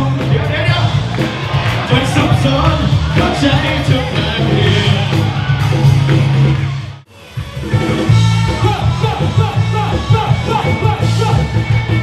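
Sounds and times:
live band music: 0.0s - 12.0s
man singing into microphone: 2.1s - 5.3s.

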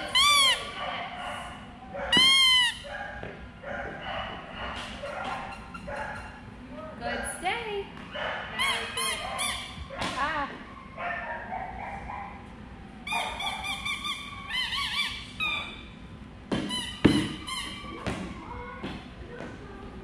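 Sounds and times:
dog whining and yipping: 8.5s - 9.9s, 13.0s - 15.9s, 16.7s - 18.0s.

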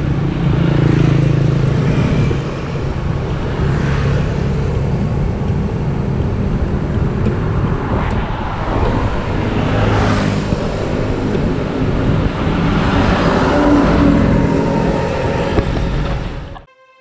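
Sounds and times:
road traffic noise: 0.0s - 16.8s
diesel truck engine running: 8.8s - 16.7s.

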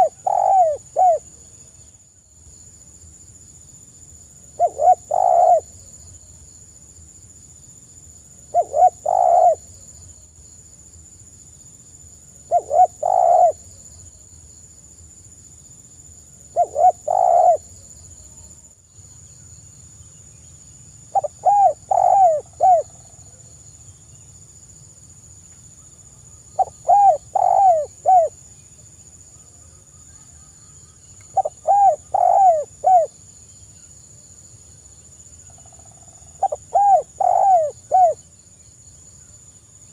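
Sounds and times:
dove cooing: 0.0s - 1.2s, 4.6s - 5.7s, 8.5s - 9.6s, 12.5s - 13.6s, 16.5s - 17.7s, 21.1s - 23.0s, 26.6s - 28.3s, 31.4s - 33.1s, 36.4s - 38.2s.

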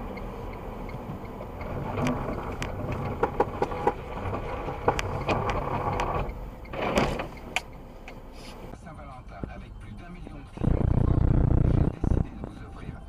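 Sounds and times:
car driving on snow: 0.0s - 8.7s
sharp clicks and knocks: 0.9s - 8.2s.

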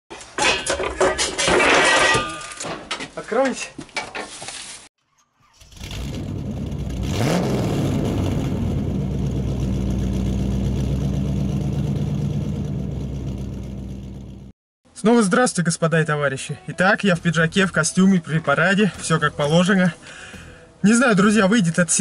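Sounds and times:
vehicle engine starting and revving: 5.4s - 14.5s.

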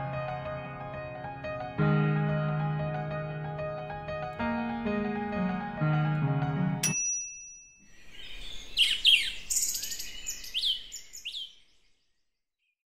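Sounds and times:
keyboard music: 0.0s - 7.4s
short ringing ding: 6.8s - 7.9s
birds chirping and singing: 7.9s - 12.0s.

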